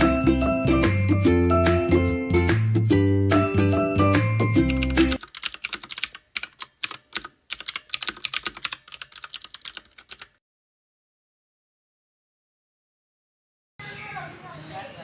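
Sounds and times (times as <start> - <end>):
music: 0.0 - 5.2
keyboard typing clicks: 4.6 - 10.4.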